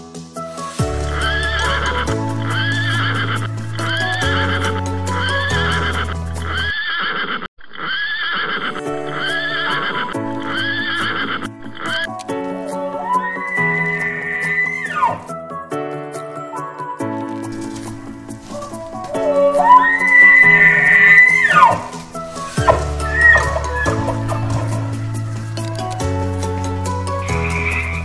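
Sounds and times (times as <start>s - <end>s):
background music: 0.0s - 6.7s, 8.6s - 28.0s
pony neighing: 1.1s - 15.3s, 18.5s - 25.9s.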